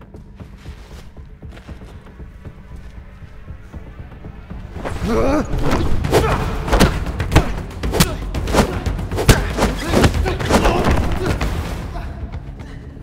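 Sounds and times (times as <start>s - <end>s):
dramatic film score: 0.0s - 13.0s
punch and kick impacts: 5.6s - 11.8s.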